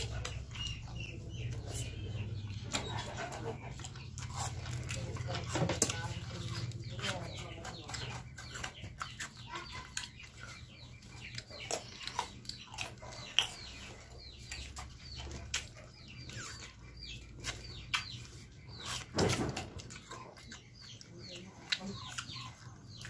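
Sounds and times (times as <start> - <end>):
chickens clucking: 0.0 - 23.0
crunching and chewing mango: 0.0 - 23.0.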